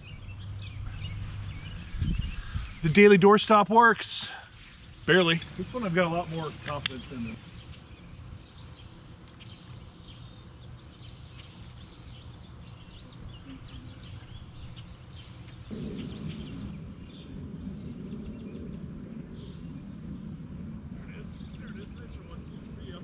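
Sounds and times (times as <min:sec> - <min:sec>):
small birds chirping: 0:00.0 - 0:03.6, 0:04.2 - 0:23.0
steady low background noise: 0:00.0 - 0:23.0
low rumble: 0:15.7 - 0:23.0.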